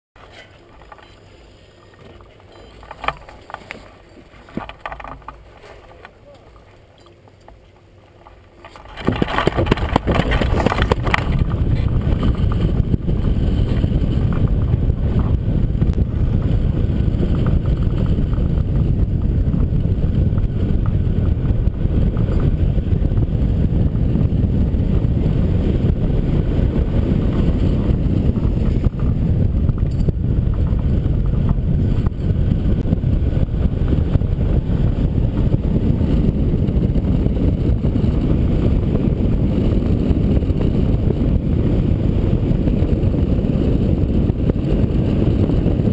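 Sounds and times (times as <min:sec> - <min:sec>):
wind noise on microphone: 0:08.2 - 0:45.9.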